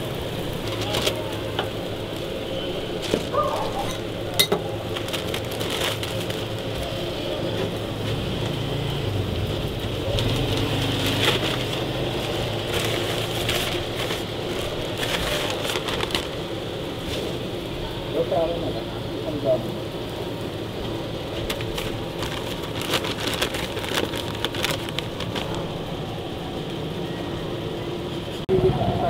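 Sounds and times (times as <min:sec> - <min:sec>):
patties sizzling on a griddle: 0:00.0 - 0:27.5
metal utensils clinking: 0:03.6 - 0:05.1.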